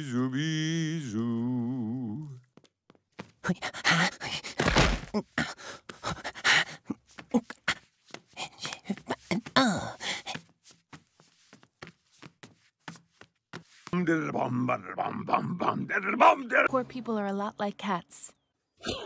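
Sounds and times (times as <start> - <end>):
boy huffing and panting: 3.5 - 10.4.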